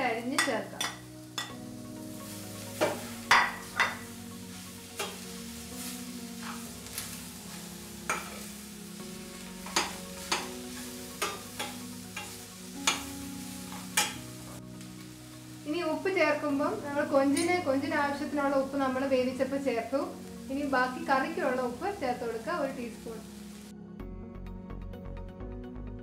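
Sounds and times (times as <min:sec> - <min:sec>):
frying sizzle: 0:00.0 - 0:23.7
spoon scraping metal pan: 0:06.4 - 0:07.1, 0:08.0 - 0:08.5.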